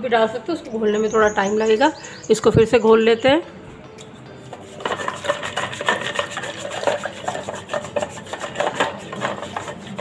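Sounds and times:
wooden churner knocking against steel: 4.8 - 10.0.

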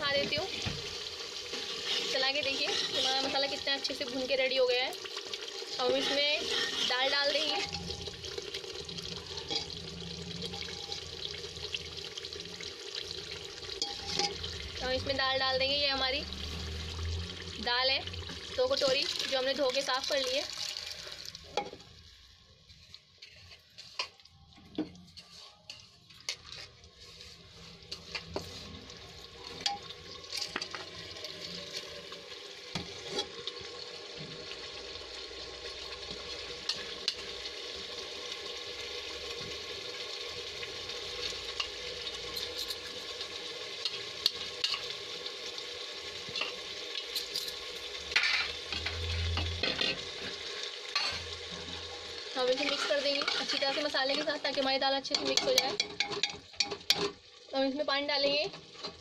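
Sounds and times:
steady sizzle: 0.0 - 59.0
ladle clinking and scraping pot: 1.5 - 3.7, 5.6 - 8.1, 9.4 - 9.8, 13.8 - 14.6, 41.6 - 43.1, 46.3 - 51.9, 52.5 - 54.2, 55.1 - 57.2.

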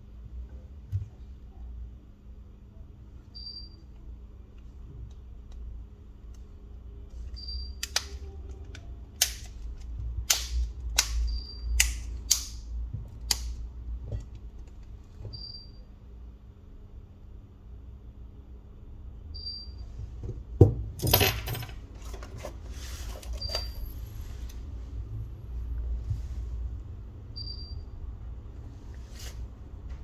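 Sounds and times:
low steady hum: 0.0 - 30.0
clicks and snaps of phone parts: 7.8 - 12.6, 13.2 - 13.6.

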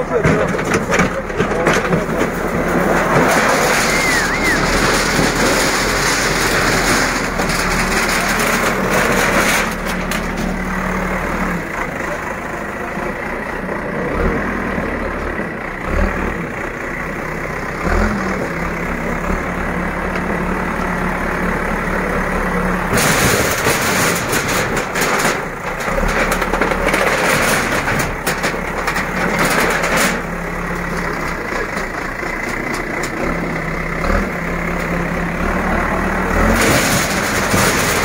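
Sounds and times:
metal sheets clattering and crashing: 0.0 - 10.6, 22.9 - 32.1, 36.4 - 38.0
diesel engine running: 0.0 - 38.0.

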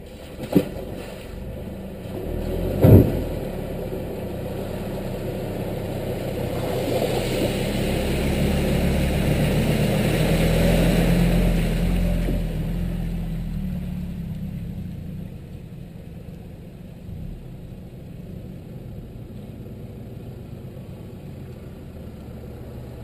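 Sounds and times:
water splashing off tyres: 0.0 - 19.6
truck engine: 0.0 - 23.0
sharp thumps: 2.7 - 3.5.

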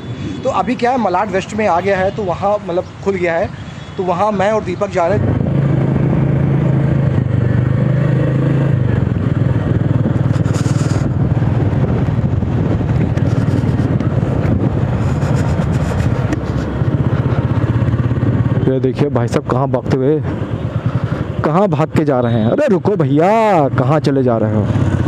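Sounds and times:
road noise: 0.0 - 25.0
motorcycle engine running: 5.0 - 22.5, 23.2 - 25.0.

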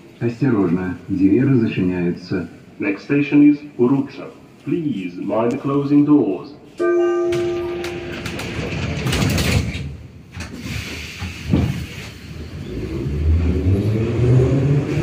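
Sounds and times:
train doors closing: 6.8 - 13.0.

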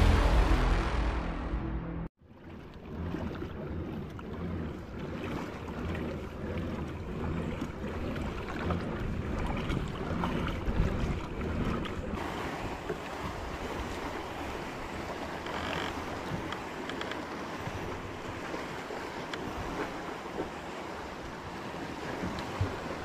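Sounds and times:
music: 0.0 - 2.1
water sloshing and lapping: 2.2 - 23.0.

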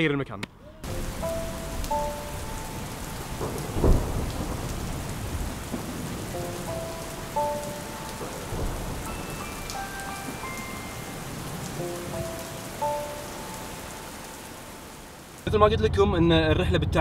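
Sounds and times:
rain on stone paving: 0.8 - 15.5
loud low thump: 3.4 - 6.2.

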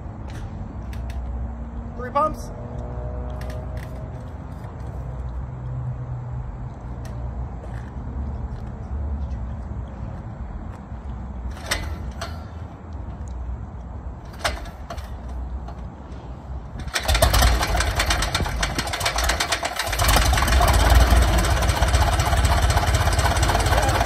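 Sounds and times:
aircraft engine starting and idling: 11.5 - 12.4, 14.3 - 15.4, 16.7 - 24.0.

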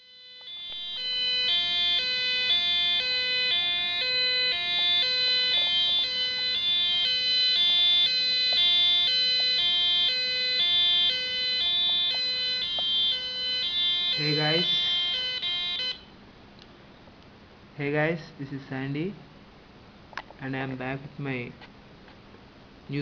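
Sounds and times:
buzzy two-tone siren: 0.0 - 16.2.

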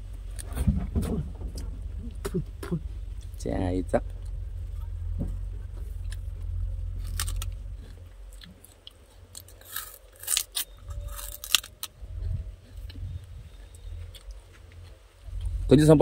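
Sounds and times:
low steady rumble: 0.0 - 16.0
chewing sugarcane crunches: 4.1 - 15.8.

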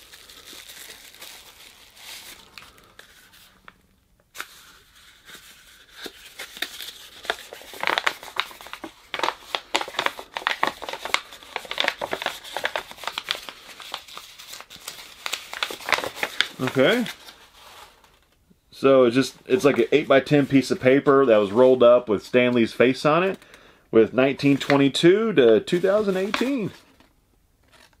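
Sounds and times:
packaging crinkling and tearing: 0.0 - 18.4, 25.7 - 27.0.

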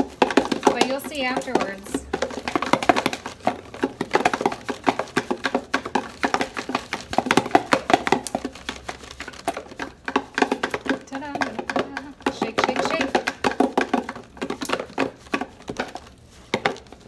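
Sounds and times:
marbles rattling in cardboard box: 0.0 - 17.0.

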